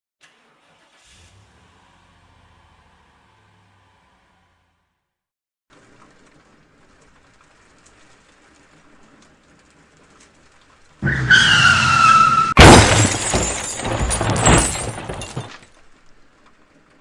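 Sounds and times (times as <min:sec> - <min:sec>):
tyres skidding: 0:05.7 - 0:17.0
car crash impact: 0:11.0 - 0:15.8
glass breaking and shattering: 0:12.5 - 0:15.8.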